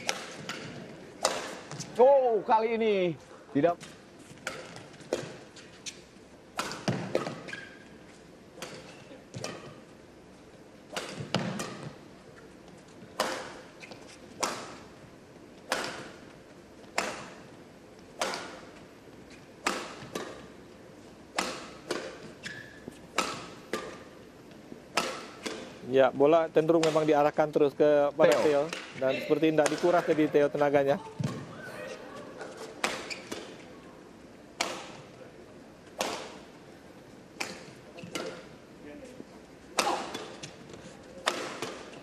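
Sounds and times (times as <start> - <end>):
rackets hitting shuttlecock: 0.0 - 2.3, 3.8 - 5.4, 6.5 - 7.8, 8.6 - 9.8, 10.9 - 12.0, 13.1 - 14.9, 15.6 - 17.5, 18.1 - 18.7, 19.3 - 20.6, 21.3 - 24.2, 24.9 - 25.8, 26.7 - 27.2, 28.2 - 31.6, 32.3 - 33.7, 34.6 - 35.2, 35.8 - 36.5, 37.3 - 38.6, 39.7 - 42.0.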